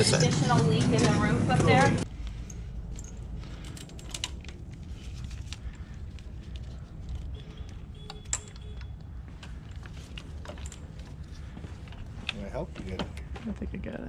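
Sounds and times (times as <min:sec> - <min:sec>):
steady low rumble: 0:00.0 - 0:13.3
clicks and rattles of handling parts: 0:02.2 - 0:13.4.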